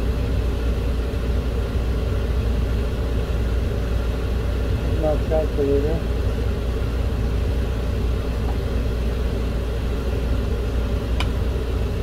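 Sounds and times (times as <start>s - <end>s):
low mechanical rumble: 0.0s - 12.0s.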